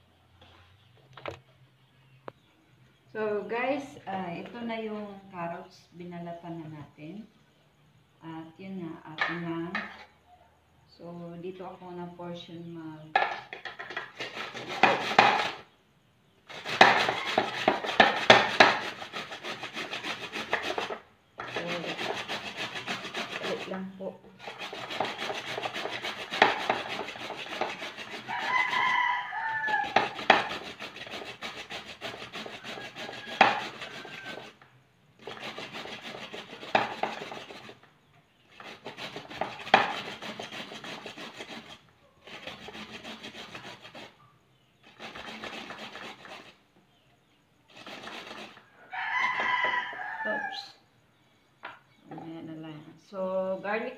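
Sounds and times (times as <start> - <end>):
carrot scraping on metal grater: 13.2 - 15.7, 16.5 - 34.6, 35.2 - 37.9, 38.5 - 44.2, 44.8 - 46.6, 47.7 - 48.7.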